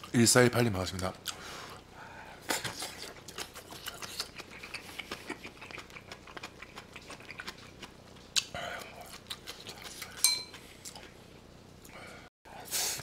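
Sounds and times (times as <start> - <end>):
close chewing: 2.5 - 11.2.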